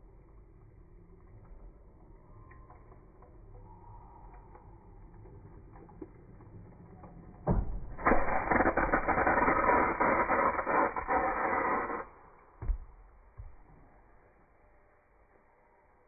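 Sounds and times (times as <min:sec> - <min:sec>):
hissing spray of water: 0:07.9 - 0:12.5.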